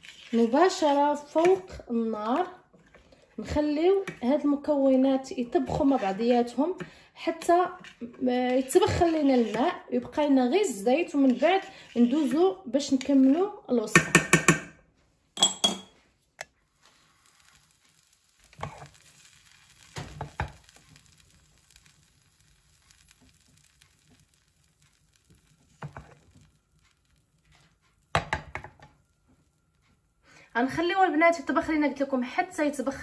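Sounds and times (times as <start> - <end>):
faint steady hiss: 15.9 - 32.9.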